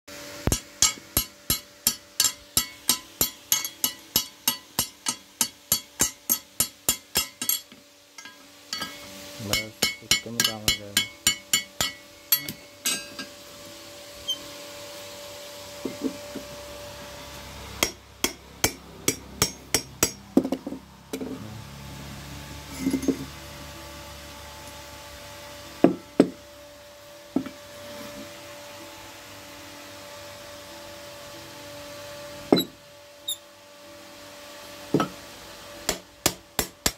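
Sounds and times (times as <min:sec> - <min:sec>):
hammer striking metal on anvil: 0:00.5 - 0:13.4, 0:17.8 - 0:20.5, 0:35.9 - 0:36.9.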